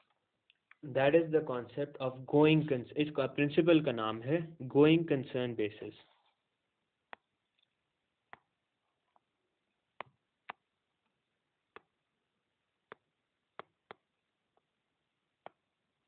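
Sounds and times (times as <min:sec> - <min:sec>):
stylus tapping tablet screen: 0:07.0 - 0:12.1, 0:12.7 - 0:16.0.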